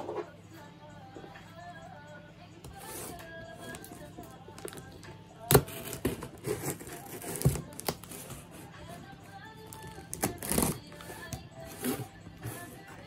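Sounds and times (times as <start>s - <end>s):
soft background music: 0.0s - 13.0s
tape tearing: 5.5s - 8.6s, 9.7s - 12.8s
scissors scraping packing tape: 5.5s - 8.9s, 9.7s - 12.9s.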